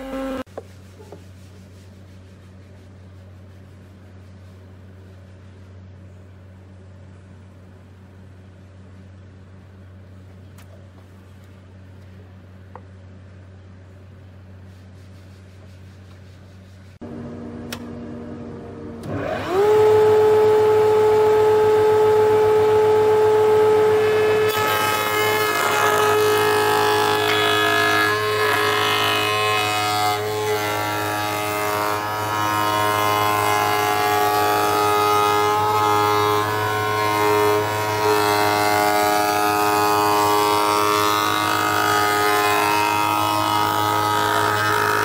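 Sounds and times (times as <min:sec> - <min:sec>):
router bit cutting wood: 0:00.0 - 0:00.5, 0:19.0 - 0:45.0
router whine: 0:00.0 - 0:00.5, 0:17.0 - 0:45.0.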